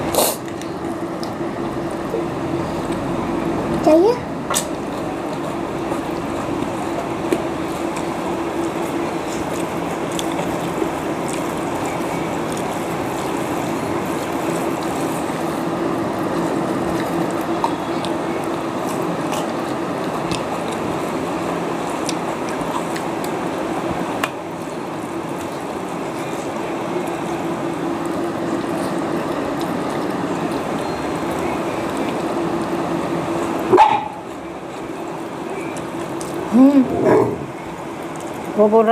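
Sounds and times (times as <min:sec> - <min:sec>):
noisy hiss: 0:00.0 - 0:00.8.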